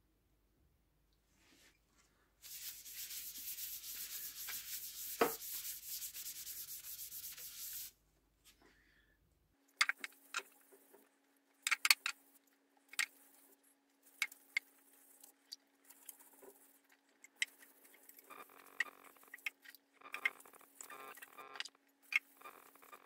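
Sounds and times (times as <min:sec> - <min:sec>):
faint steady hum: 0:00.0 - 0:23.0
cloth rubbing on wood: 0:02.4 - 0:07.9.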